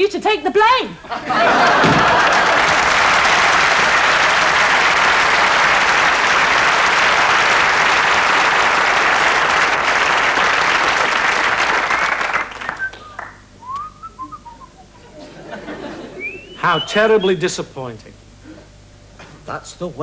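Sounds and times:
audience applauding: 0:01.3 - 0:14.5.

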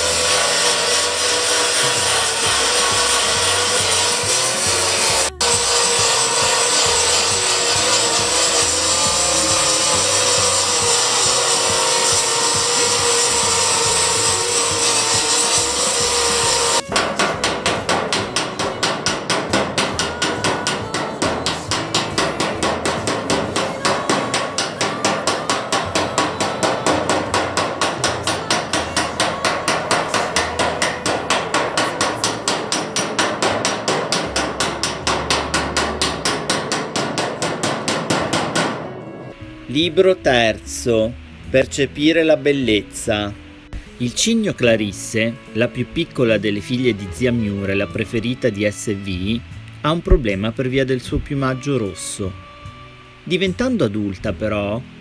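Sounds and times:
belt file grinding metal: 0:00.0 - 0:38.8
rapid hammering on sheet metal: 0:00.0 - 0:39.1.

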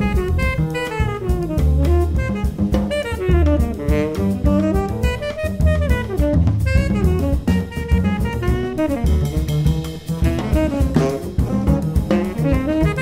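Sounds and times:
double bass: 0:00.0 - 0:13.0
drum kit with cymbals: 0:00.0 - 0:13.0
saxophone playing quick line: 0:00.0 - 0:13.0.

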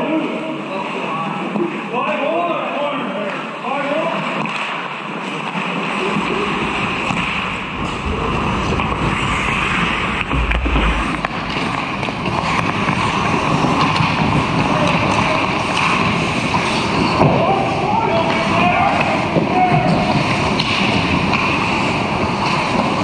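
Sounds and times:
low thumps: 0:06.3 - 0:13.1
skate blades scraping ice: 0:20.0 - 0:23.0.

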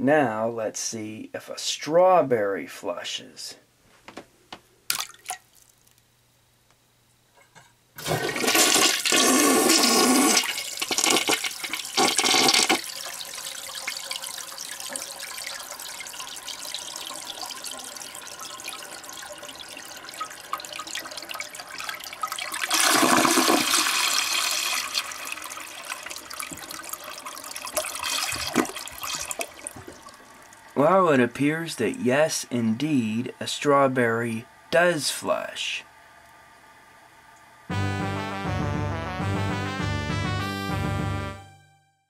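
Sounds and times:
toilet flushing: 0:08.0 - 0:31.2.

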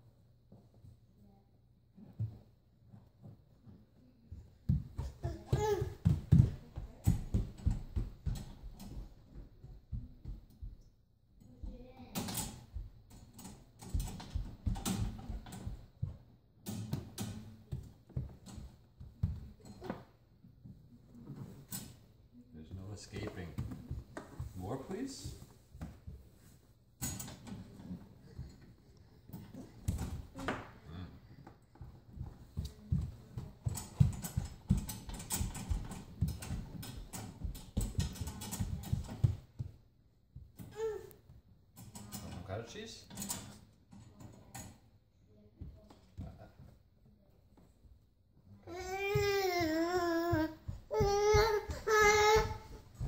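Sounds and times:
baby gate rattling and knocking: 0:13.3 - 0:15.8, 0:27.0 - 0:28.0, 0:33.6 - 0:39.4, 0:43.1 - 0:44.7.

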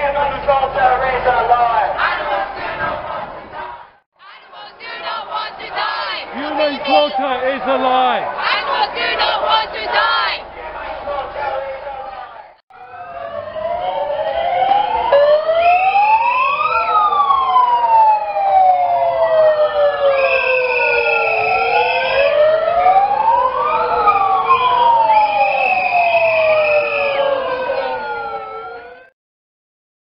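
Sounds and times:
wailing sirens: 0:05.3 - 0:10.6, 0:12.2 - 0:29.1.

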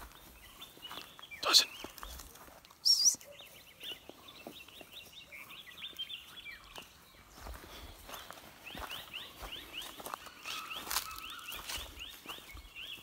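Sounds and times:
bird chirps: 0:00.0 - 0:13.0
footsteps on dry grass: 0:00.0 - 0:13.0
bird whistled call: 0:02.8 - 0:03.2.

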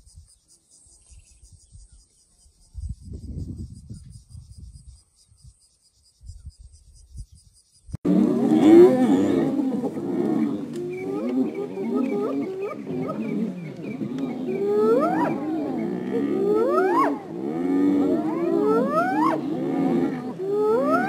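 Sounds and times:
wild dogs and hyenas calling: 0:08.1 - 0:21.0.

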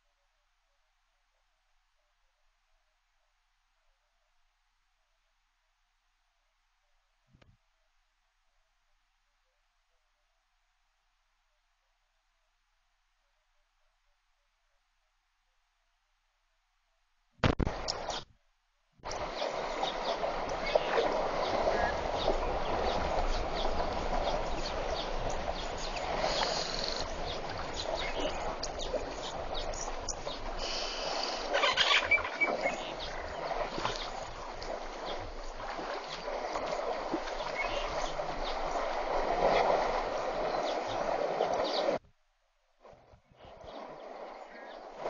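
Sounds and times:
water splashing and sloshing: 0:17.4 - 0:18.3, 0:19.0 - 0:42.0, 0:42.7 - 0:45.0.

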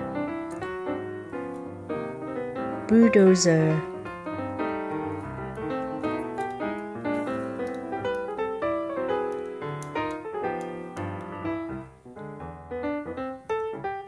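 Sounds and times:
light piano tune: 0:00.0 - 0:14.0.

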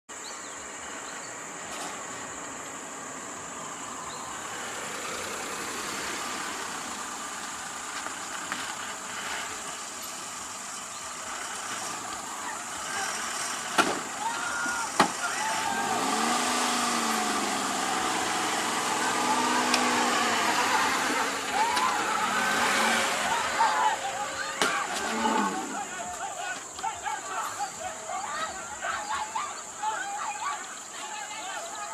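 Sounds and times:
bus engine idling: 0:00.1 - 0:31.9
high hiss: 0:00.3 - 0:31.4
people's voices: 0:03.3 - 0:31.9.

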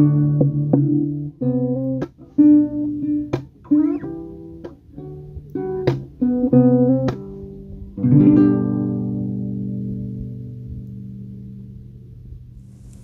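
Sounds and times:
acoustic guitar chords: 0:00.0 - 0:12.6.

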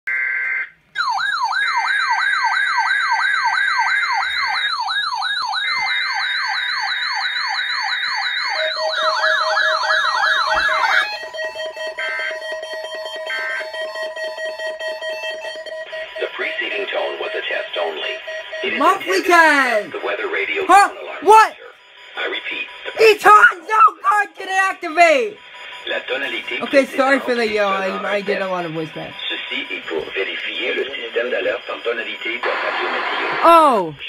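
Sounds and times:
electronic siren alarm: 0:00.1 - 0:34.0
two-tone data burst: 0:08.5 - 0:33.8.

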